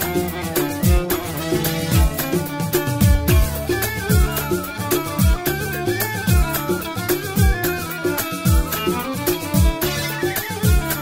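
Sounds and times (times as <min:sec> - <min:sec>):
ornamented melody line: 0:00.0 - 0:11.0
deep drum hits: 0:03.0 - 0:04.4.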